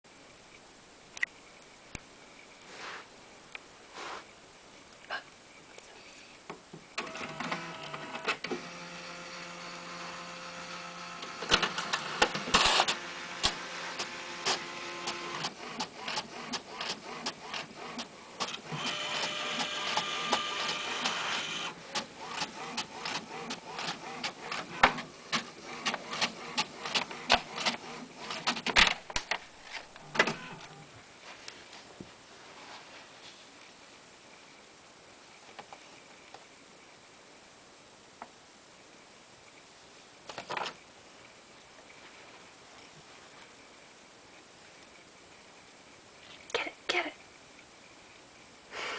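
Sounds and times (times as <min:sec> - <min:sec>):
printer motors whining: 0:07.0 - 0:28.8, 0:29.8 - 0:30.9.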